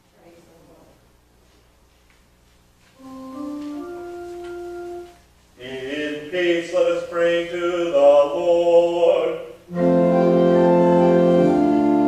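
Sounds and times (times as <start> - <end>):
church organ playing: 3.0 - 12.0.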